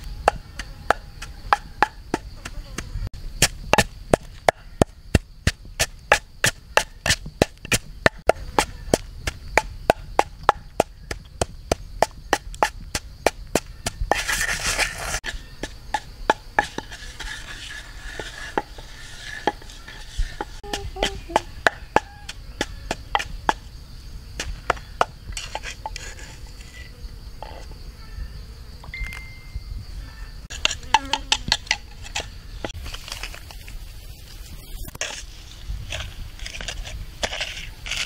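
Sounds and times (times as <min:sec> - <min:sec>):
brief scraping rush: 0:14.1 - 0:15.2.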